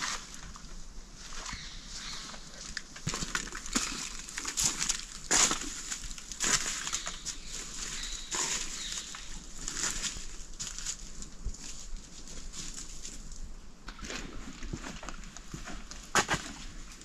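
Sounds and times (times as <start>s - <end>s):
footsteps crunching dry leaves: 1.2s - 13.3s.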